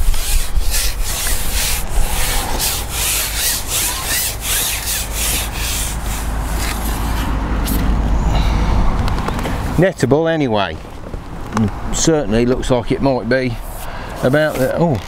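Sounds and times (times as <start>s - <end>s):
fishing pole sections scraping: 0.0s - 7.9s, 13.6s - 15.0s
low rumble: 1.3s - 4.5s.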